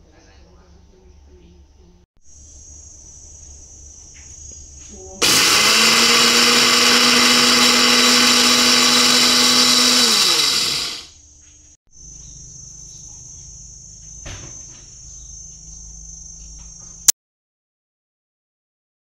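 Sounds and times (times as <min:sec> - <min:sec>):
electric grinder motor grinding: 0:05.2 - 0:11.1.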